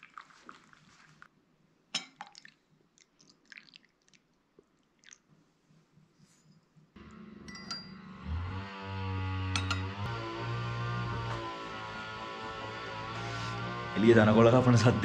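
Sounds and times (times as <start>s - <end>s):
tea pouring into cup: 0.0s - 1.3s
milk pouring with small splashes: 0.0s - 1.4s, 2.1s - 5.4s.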